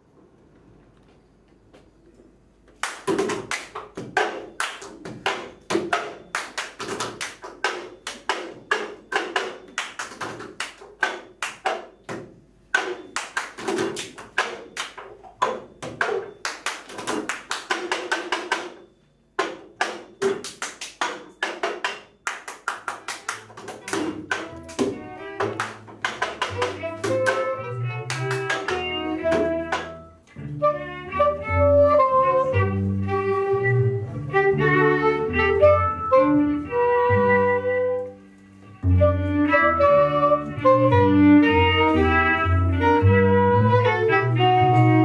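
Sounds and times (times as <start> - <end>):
hands clapping and slapping table: 2.7 - 18.8, 19.4 - 27.4, 28.1 - 28.8.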